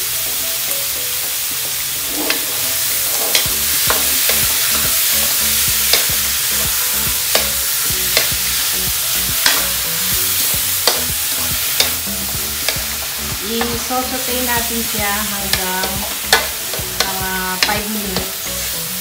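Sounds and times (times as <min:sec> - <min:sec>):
meat sizzling in oil: 0:00.0 - 0:19.0
wooden spoon knocking a pan: 0:03.1 - 0:09.8, 0:10.4 - 0:18.4.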